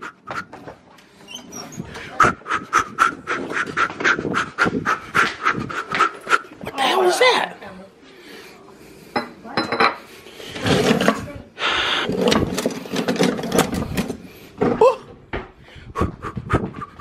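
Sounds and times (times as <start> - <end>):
metal utensils clattering in drawer: 12.1 - 14.2.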